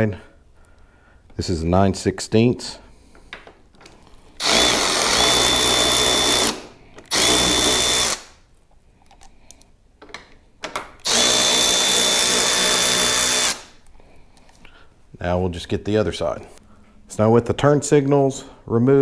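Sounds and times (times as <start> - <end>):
cordless ratchet whining: 4.4 - 8.4, 11.0 - 13.8.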